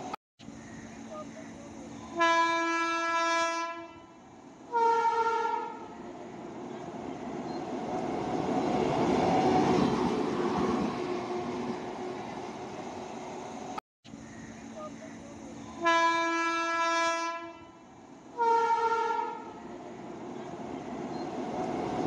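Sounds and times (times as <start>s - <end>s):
locomotive horn blasts: 2.2s - 5.9s, 15.8s - 17.8s, 18.4s - 19.6s
locomotive passing by: 5.6s - 16.6s, 17.8s - 22.0s.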